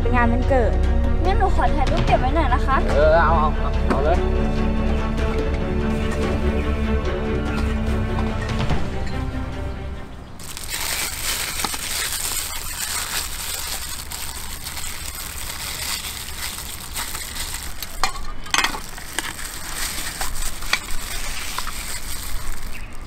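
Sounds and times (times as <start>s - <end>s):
plastic glove crinkling: 10.4s - 23.0s.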